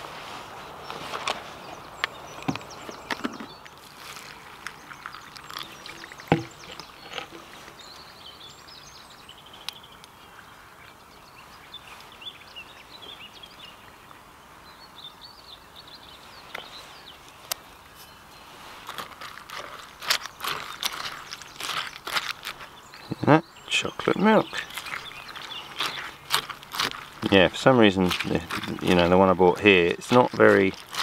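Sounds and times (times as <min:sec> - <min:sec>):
faint birds chirping: 0:00.0 - 0:31.0
water poured onto muesli: 0:03.7 - 0:06.6.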